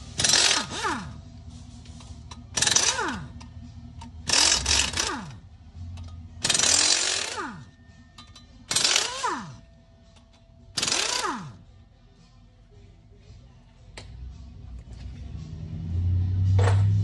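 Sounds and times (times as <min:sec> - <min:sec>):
air impact wrench bursts: 0:00.0 - 0:01.2, 0:02.5 - 0:03.4, 0:04.3 - 0:05.4, 0:06.4 - 0:07.7, 0:08.7 - 0:09.6, 0:10.8 - 0:11.6.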